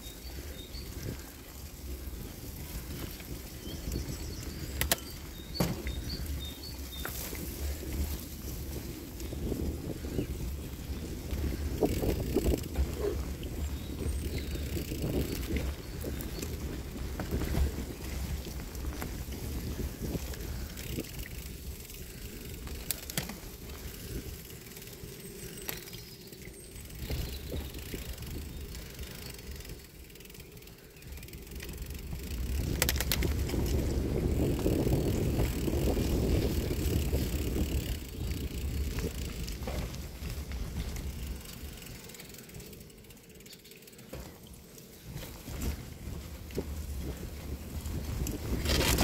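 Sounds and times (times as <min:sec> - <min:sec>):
bicycle tyres rumbling on gravel: 0:00.0 - 0:49.0
bike rattling: 0:00.0 - 0:49.0.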